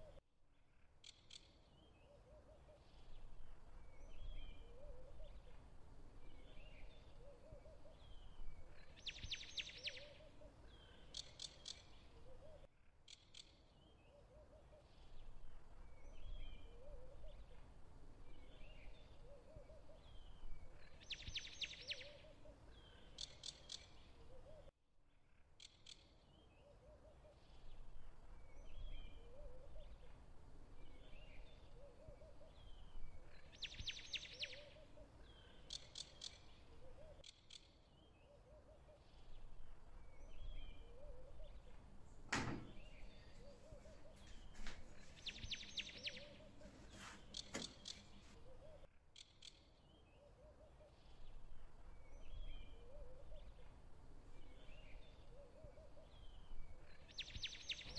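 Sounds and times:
birds chirping: 1.4 - 12.7, 26.0 - 57.9.

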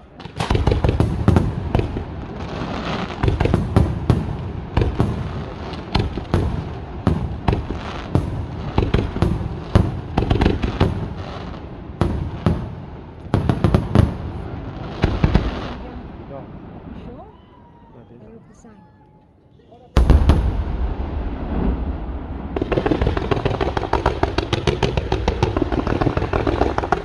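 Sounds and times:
firework shells bursting: 22.2 - 27.0.

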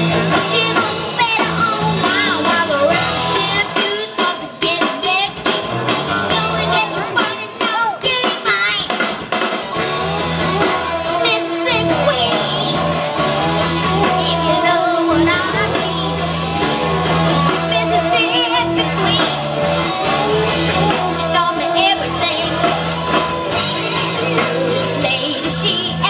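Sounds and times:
person singing: 0.0 - 5.5, 6.3 - 9.0, 9.8 - 26.0
live rock band: 0.0 - 26.0
low bass line: 9.8 - 26.0.

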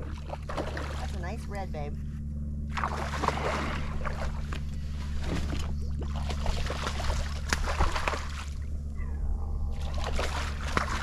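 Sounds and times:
water sloshing: 0.0 - 1.9, 2.7 - 9.1, 9.7 - 11.0
steady low hum: 0.0 - 11.0
fish splashing at water surface: 2.7 - 8.7, 9.7 - 11.0.

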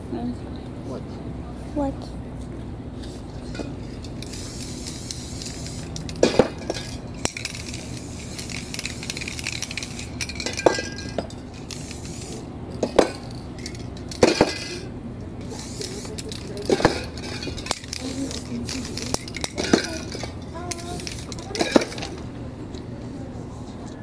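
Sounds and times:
spray paint cans hissing: 3.0 - 22.3
metallic clinks of spray cans: 3.4 - 22.3.

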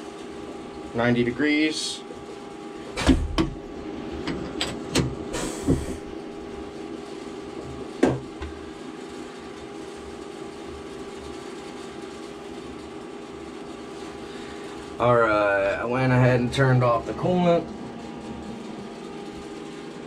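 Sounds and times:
machine hum: 0.0 - 20.0
short hiss: 5.3 - 6.0.

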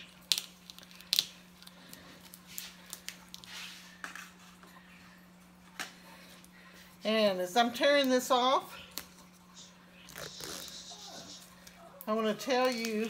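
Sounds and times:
shrink-wrap crackling: 0.0 - 4.4, 7.9 - 13.0.

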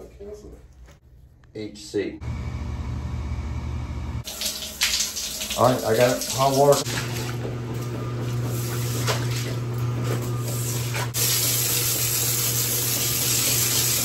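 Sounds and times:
machine hum: 2.1 - 4.4, 6.7 - 14.0.

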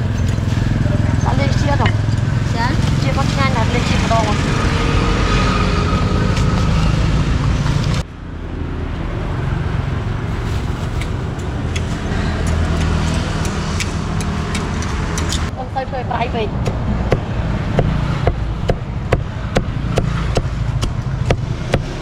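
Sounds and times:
traffic engine hum: 0.0 - 22.0.

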